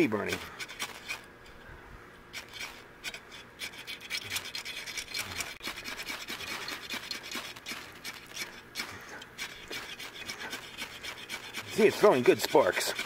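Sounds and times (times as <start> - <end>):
striker scraping ferrocerium rod: 2.3 - 13.0.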